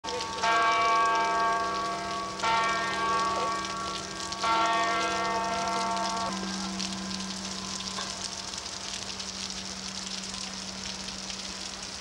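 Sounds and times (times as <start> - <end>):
church bell tolling: 0.1 - 8.4
rain hiss: 0.1 - 12.0.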